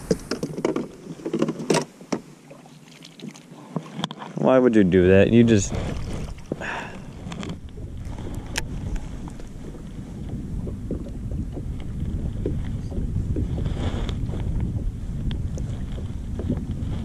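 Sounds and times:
wind rumbling on microphone: 0.0s - 1.7s, 4.7s - 17.0s
water slapping against boat hull: 5.7s - 17.0s.

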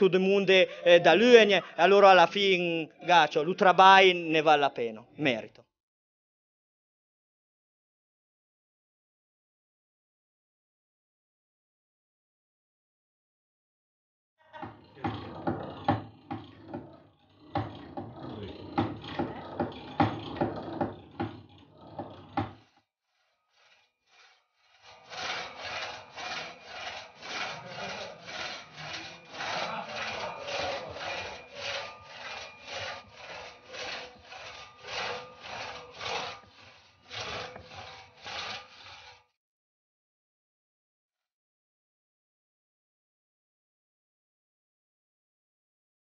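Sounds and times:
irregular rubbing with knocks: 14.6s - 39.3s
crosscut saw rasping through log: 14.6s - 39.4s.

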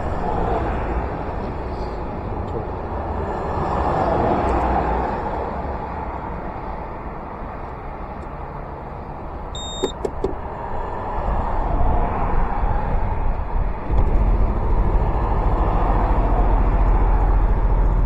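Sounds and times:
cars driving by: 0.0s - 18.0s
low traffic rumble: 0.0s - 18.0s
brief high beeps: 9.6s - 10.1s.

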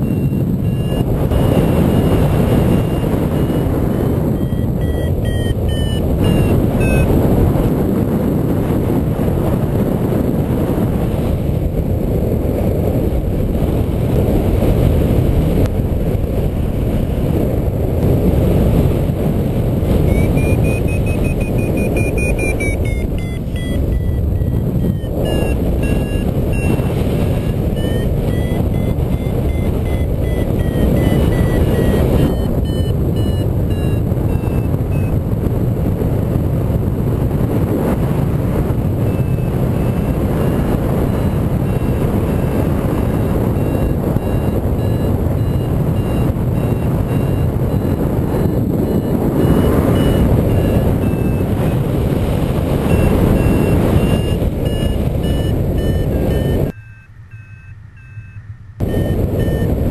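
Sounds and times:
variometer beeping: 0.0s - 7.8s, 19.8s - 36.8s, 37.4s - 59.9s
wind rushing over microphone: 0.0s - 59.9s.

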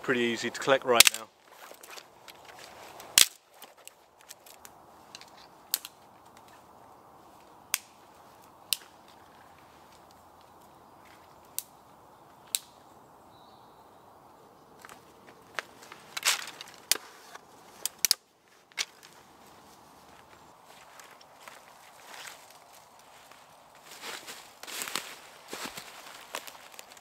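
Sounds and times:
dry sticks snapping: 1.0s - 6.7s, 7.4s - 11.8s, 12.4s - 12.9s, 14.8s - 19.2s, 20.8s - 27.0s.

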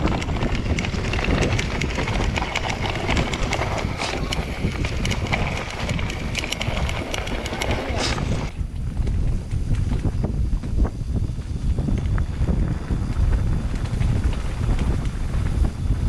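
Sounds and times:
bike rattling over bumps: 0.0s - 16.0s
wind on microphone: 0.0s - 16.0s.

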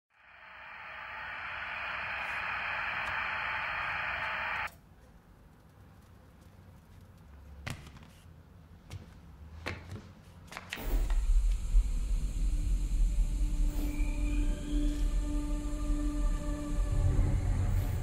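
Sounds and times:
television static hiss: 0.1s - 4.7s.

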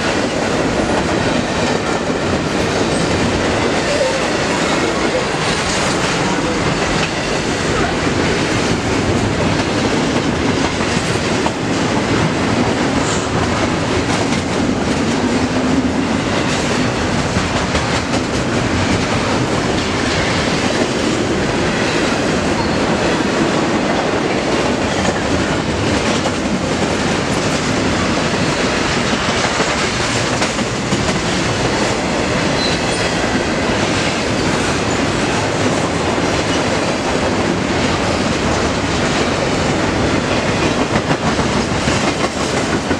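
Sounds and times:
train wheels rolling on rail: 0.0s - 42.9s
faint clatter of train cars: 23.7s - 42.9s.

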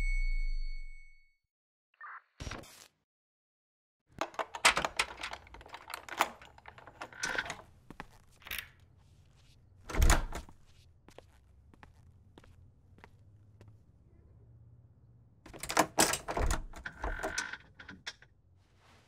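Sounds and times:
door latch clicks and knocks: 4.2s - 7.6s, 15.5s - 18.1s.

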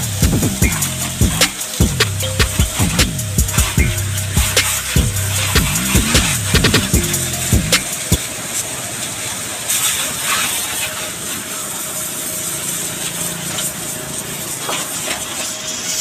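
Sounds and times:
pressure washer spray hissing: 0.0s - 11.1s.

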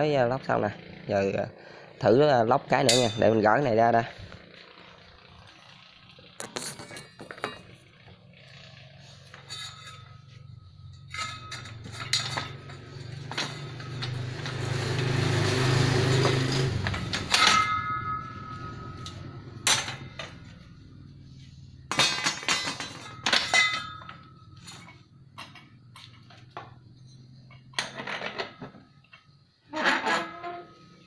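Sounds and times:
metal scraping rush: 1.3s - 24.8s
steel clanks with metallic ringing: 2.8s - 3.6s, 9.3s - 14.8s, 16.1s - 20.7s, 21.9s - 26.3s.

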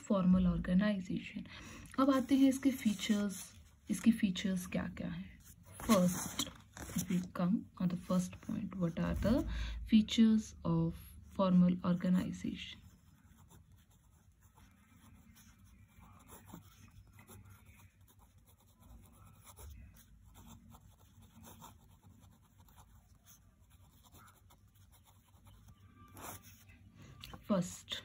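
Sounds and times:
pen scratching on paper: 12.0s - 26.8s.

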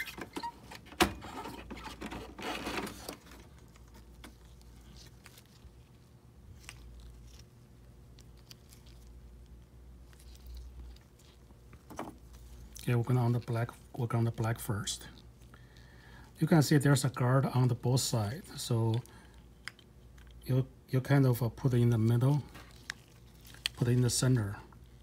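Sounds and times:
scraping and rustling of cartridge: 0.0s - 7.6s.

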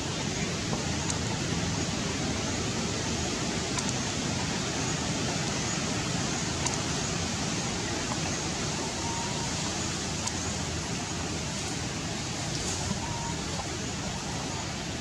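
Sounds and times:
rushing outdoor background noise: 0.0s - 15.0s
faint clicks: 3.7s - 4.0s, 6.6s - 6.9s, 9.6s - 10.5s
faint whistle: 8.8s - 9.6s, 12.9s - 13.5s.

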